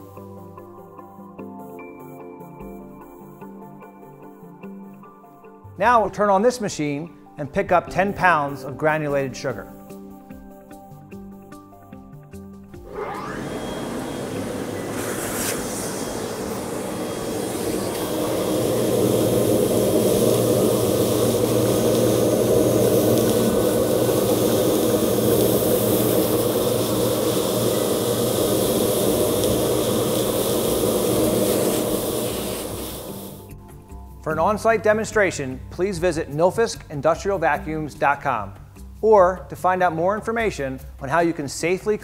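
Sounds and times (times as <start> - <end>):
industrial vacuum running: 12.8 - 33.5.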